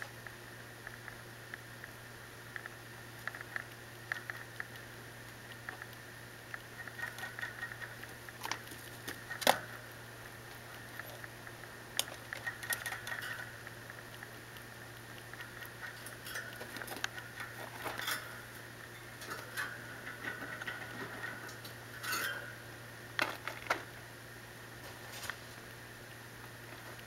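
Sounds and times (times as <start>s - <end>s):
faint steady hum: 0.0s - 27.0s
rabbit licking metal water spout: 3.2s - 22.5s.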